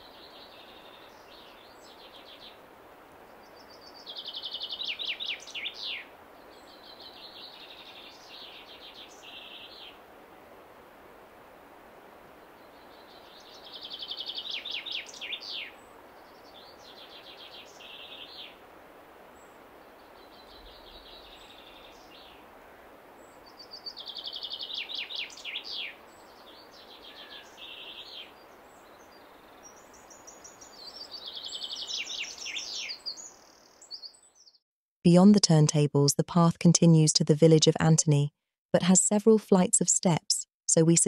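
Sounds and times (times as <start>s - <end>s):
steady background hiss: 0.0s - 33.8s
songbird singing trilled phrase: 30.2s - 34.6s.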